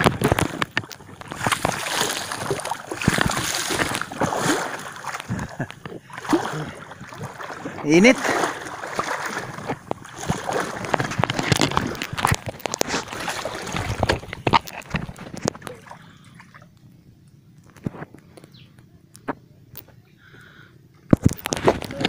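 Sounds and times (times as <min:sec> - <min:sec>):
seawater splashing around legs: 0:00.0 - 0:16.7.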